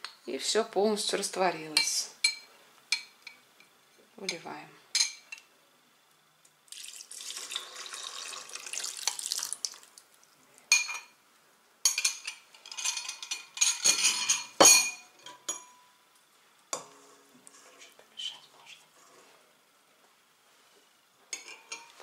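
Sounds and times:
liquid pouring into metal bowl: 6.7s - 10.0s
glass and metal dishes clinking: 10.7s - 11.2s, 11.9s - 15.9s, 21.3s - 22.0s.

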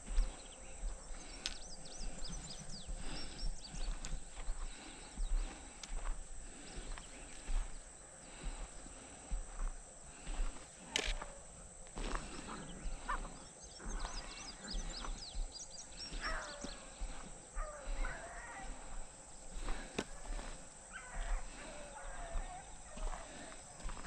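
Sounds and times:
footsteps crunching on gravel: 0.0s - 24.0s
dogs baying: 10.8s - 24.0s.

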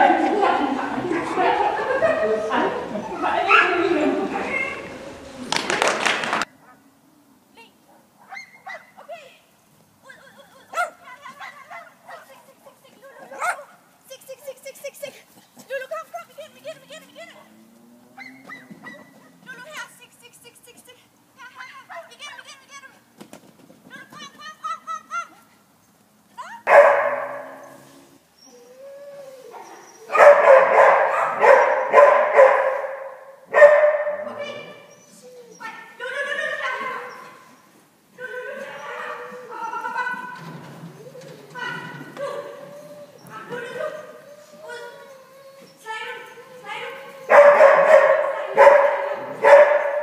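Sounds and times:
dog barking: 3.2s - 3.9s, 10.7s - 12.2s, 13.3s - 13.8s, 26.7s - 27.7s, 30.1s - 34.8s, 47.3s - 50.0s
small dog yapping: 18.2s - 19.4s, 41.1s - 50.0s.

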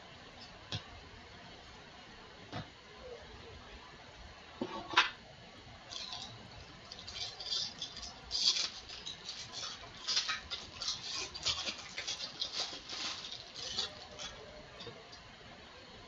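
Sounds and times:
foil wrapper crinkling and tearing: 5.9s - 14.9s.

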